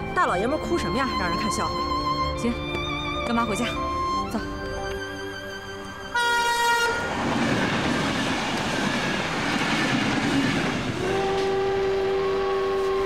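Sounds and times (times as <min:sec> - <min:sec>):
train running: 0:03.3 - 0:13.0
train horn blast: 0:06.1 - 0:07.4, 0:10.8 - 0:13.0.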